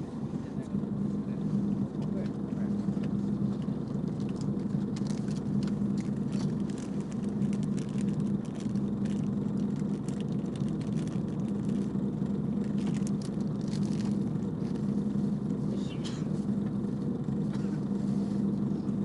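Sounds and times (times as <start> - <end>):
boat engine droning: 0.0 - 19.0
irregular crackling noise: 3.6 - 14.9.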